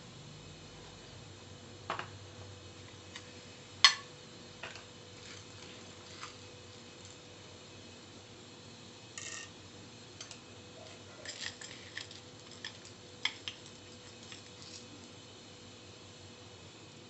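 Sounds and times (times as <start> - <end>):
faint steady hum: 0.0 - 17.0
crackles and pops of frying: 1.8 - 17.0
lentils dropped into pot rattling: 11.2 - 14.9.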